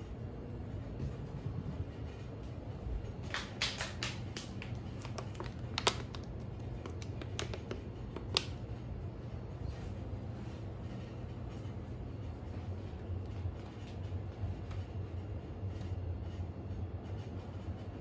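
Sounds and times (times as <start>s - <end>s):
low hum: 0.0s - 18.0s
plastic bottle crackling: 3.6s - 8.5s.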